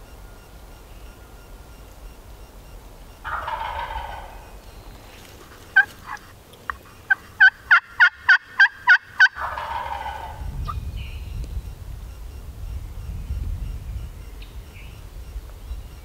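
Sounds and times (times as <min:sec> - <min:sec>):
turkey yelps: 0:03.2 - 0:04.6, 0:05.4 - 0:10.8
turkey gobbling: 0:03.2 - 0:10.8.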